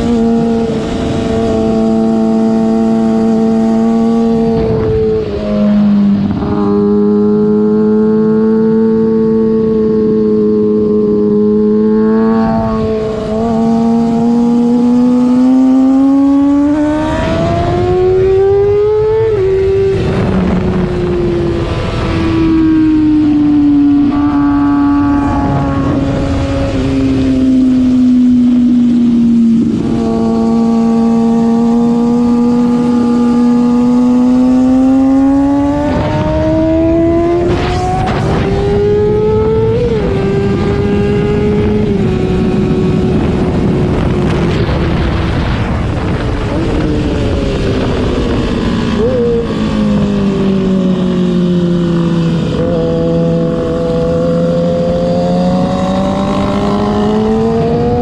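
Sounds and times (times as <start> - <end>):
motorcycle engine accelerating: 0.0 - 58.0
wind rush: 0.0 - 58.0.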